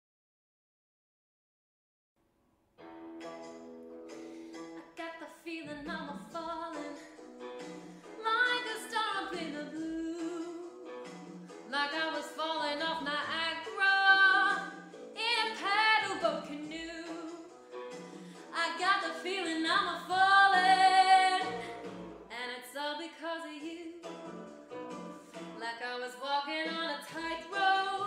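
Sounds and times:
instrumental accompaniment: 2.8s - 22.3s, 23.6s - 25.8s
woman singing: 4.8s - 7.2s, 8.2s - 10.9s, 11.7s - 17.5s, 18.4s - 24.1s, 25.6s - 28.0s.

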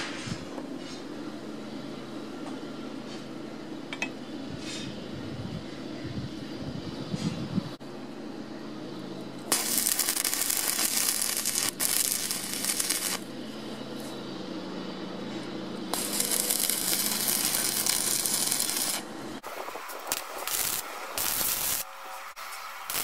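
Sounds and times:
steady low hum: 0.0s - 23.0s
welding arc crackling: 9.5s - 13.3s, 15.9s - 23.0s.

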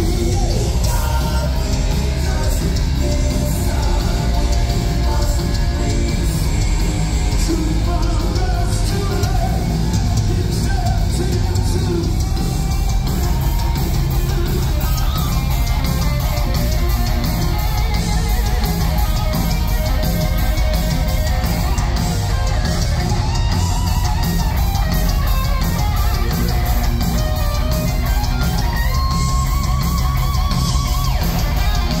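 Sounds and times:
heavy metal band playing live: 0.0s - 32.0s.

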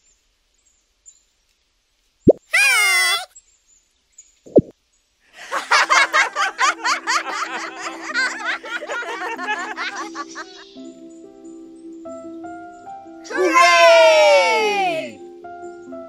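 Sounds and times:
pop sound effect: 4.5s - 4.7s
high giggling laughter: 5.4s - 10.7s.

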